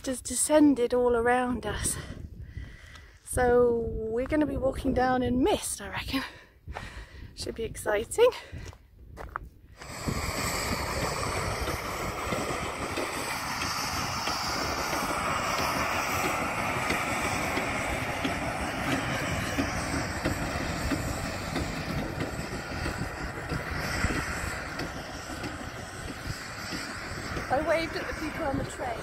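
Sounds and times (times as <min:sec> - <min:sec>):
rack steam locomotive rumbling: 0:09.8 - 0:29.0.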